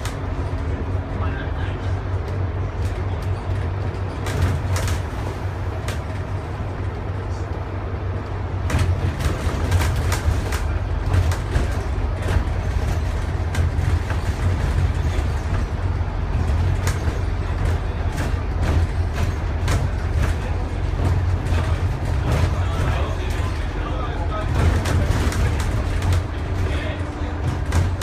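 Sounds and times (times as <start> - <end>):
bus body rattling and clicking: 0.0 - 28.0
bus diesel engine and road drone: 0.0 - 28.0.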